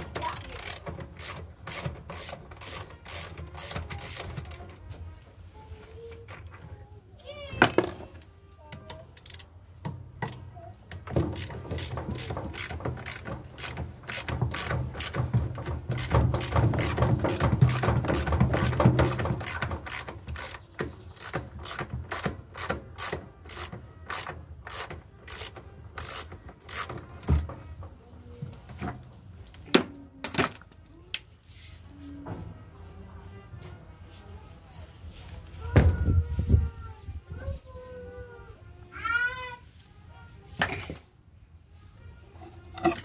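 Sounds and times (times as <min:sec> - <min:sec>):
ratchet wrench clicking: 0:00.0 - 0:04.6, 0:09.1 - 0:09.5, 0:11.0 - 0:15.2, 0:19.4 - 0:27.4.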